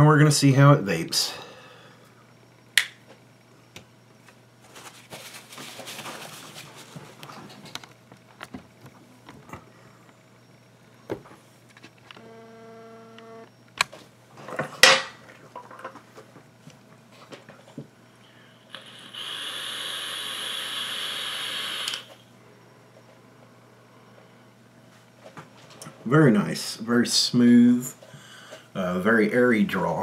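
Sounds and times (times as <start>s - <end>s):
short buzzing tone: 12.2s - 13.5s
e-liquid crackling on hot coil: 18.7s - 22.2s.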